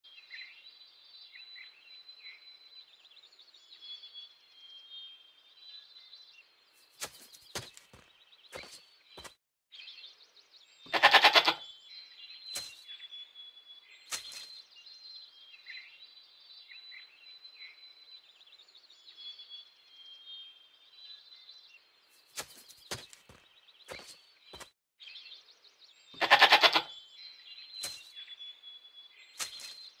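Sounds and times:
faint bird chirping: 0:00.1 - 0:30.0
goat bleating: 0:10.9 - 0:11.6, 0:26.2 - 0:26.9.

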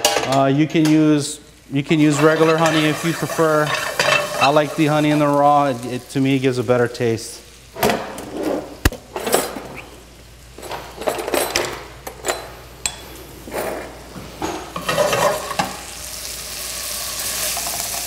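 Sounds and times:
food sizzling in a pan: 0:01.2 - 0:07.8, 0:14.7 - 0:18.0
metal spoon scraping a pan: 0:02.0 - 0:05.2.

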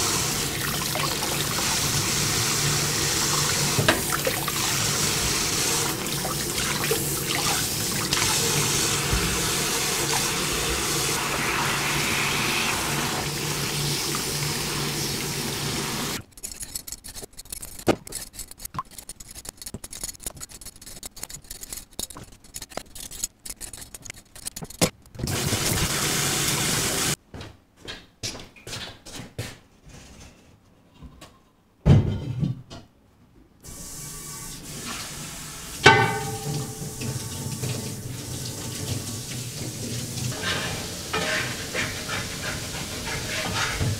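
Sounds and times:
tap water running into sink: 0:00.0 - 0:16.2, 0:34.4 - 0:43.9
peeler scraping potato: 0:16.2 - 0:25.0, 0:40.4 - 0:43.9.

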